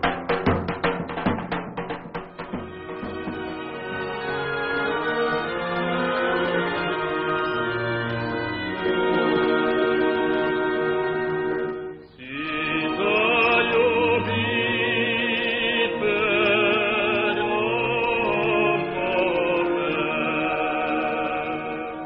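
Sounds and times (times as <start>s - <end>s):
choir singing long held notes: 2.9s - 22.0s.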